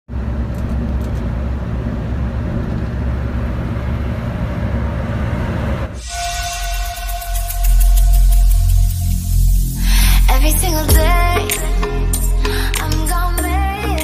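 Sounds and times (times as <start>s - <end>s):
coach diesel engine running: 0.1s - 6.0s
tyre and road noise: 0.1s - 6.1s
music: 6.0s - 14.0s.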